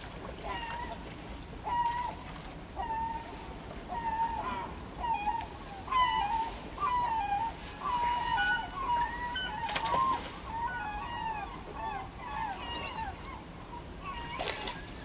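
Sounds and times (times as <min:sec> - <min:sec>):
bird calling: 0:03.9 - 0:15.0.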